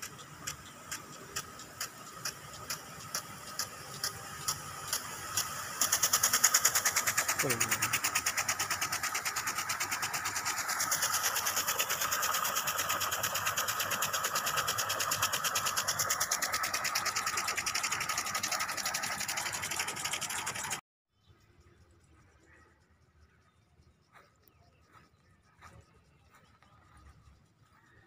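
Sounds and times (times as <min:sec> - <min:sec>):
sprinkler fast ticking: 0:00.0 - 0:20.8
sprinkler water spraying hiss: 0:00.0 - 0:20.8.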